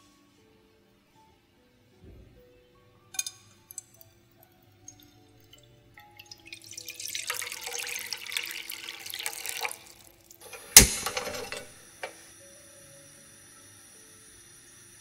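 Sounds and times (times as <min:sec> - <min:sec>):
water pouring into a pan: 0:04.8 - 0:10.4
gas burner hiss: 0:10.4 - 0:15.0
gas burner igniter click: 0:10.5 - 0:12.2.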